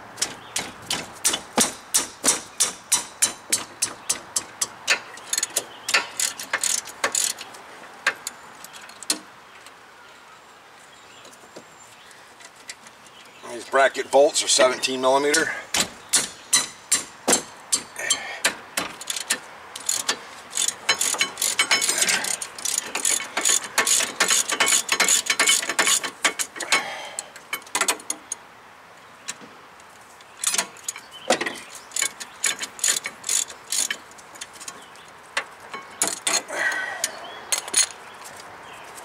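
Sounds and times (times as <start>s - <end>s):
ratchet wrench clicking: 2.9s - 7.5s, 19.0s - 26.6s, 31.9s - 34.0s.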